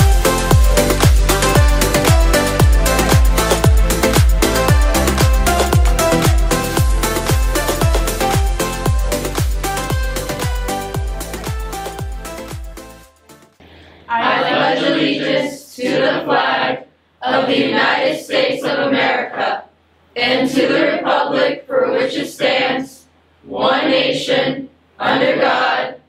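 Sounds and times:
group reciting in unison: 14.0 - 26.0.

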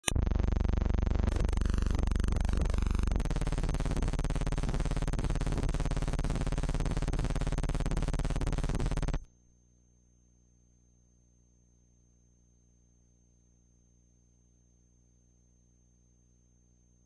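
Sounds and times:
loud pulsing buzz: 0.0 - 9.3.

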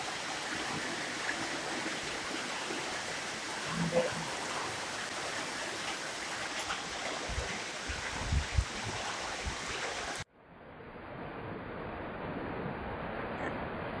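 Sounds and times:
water rushing in channel: 0.0 - 10.3.

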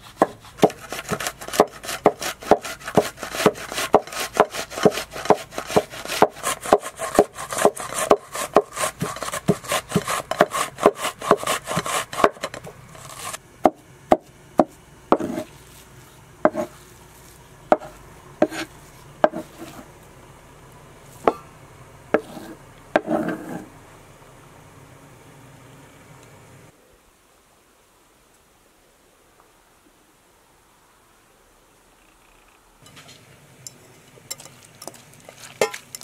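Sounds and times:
knife scraping board: 0.0 - 13.4, 14.6 - 19.9, 22.2 - 23.7
onion grated on metal grater: 0.0 - 13.4, 15.1 - 15.8, 16.4 - 19.9, 22.2 - 23.7
knife chopping on wooden board: 0.1 - 15.5, 16.4 - 16.7, 17.7 - 19.8, 22.2 - 23.6.

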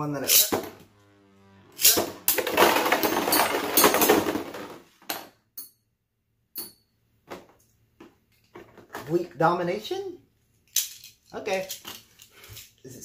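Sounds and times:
spinning tops clattering and grinding: 0.2 - 0.7, 1.8 - 5.2.

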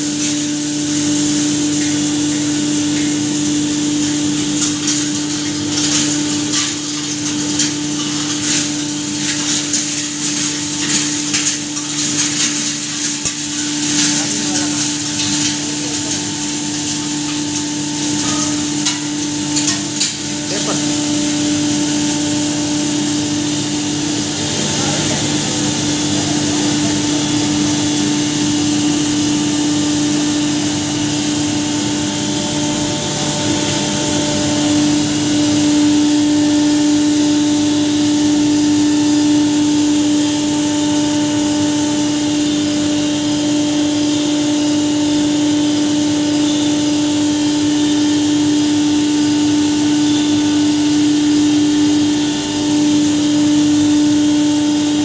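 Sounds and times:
hammer mill humming: 0.0 - 29.9.

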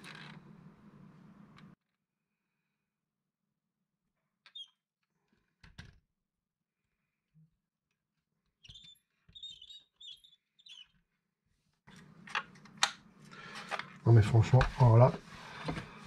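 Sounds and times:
short high squeaks: 8.6 - 10.9.

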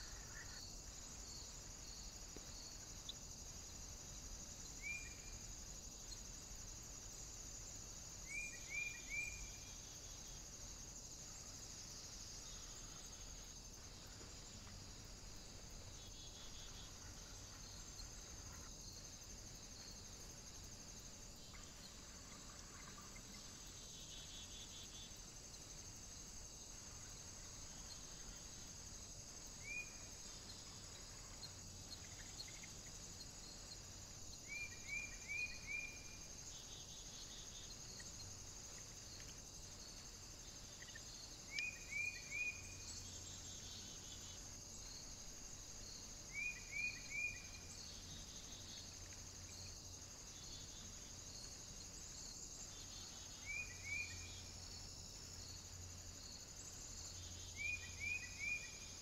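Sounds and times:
steady high hiss: 0.0 - 59.0
small birds chirping: 29.4 - 39.6.

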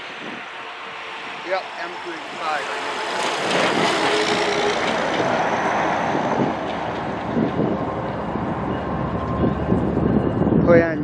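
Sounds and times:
road vehicle noise: 0.0 - 11.0
wind buffeting microphone: 0.0 - 11.0.

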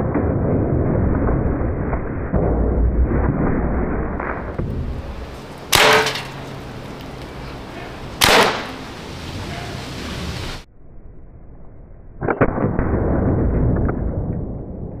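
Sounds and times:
air revolver shots: 5.7 - 6.6, 8.2 - 8.9.

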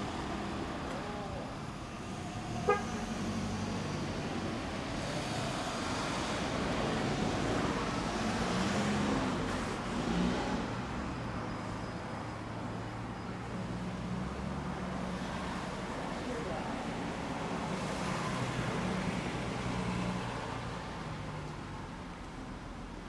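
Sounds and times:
road traffic engine hum: 0.0 - 23.0
vehicle passing by: 2.1 - 11.2.

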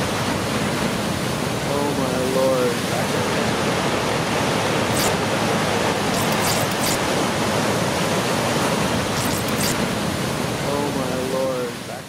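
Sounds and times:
high hissing crackles: 4.9 - 5.2.

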